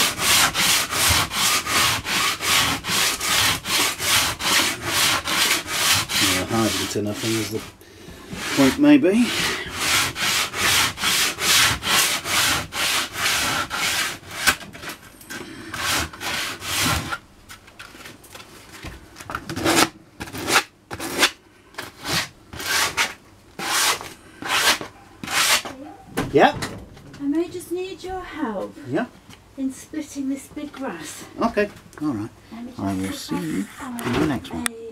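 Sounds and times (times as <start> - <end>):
sandpaper rubbing on wood: 0.0 - 14.6, 15.8 - 17.2, 22.0 - 25.7.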